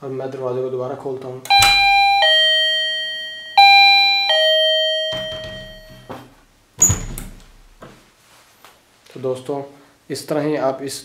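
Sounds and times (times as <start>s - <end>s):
doorbell chiming ding-dong: 1.5s - 6.3s.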